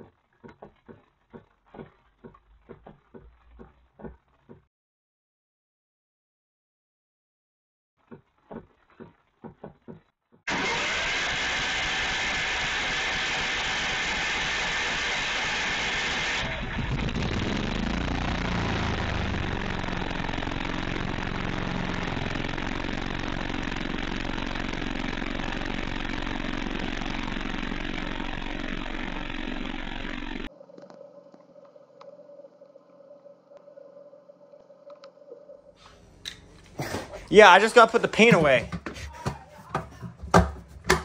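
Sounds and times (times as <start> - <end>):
portable generator running: 10.5 - 30.5, 35.8 - 38.9.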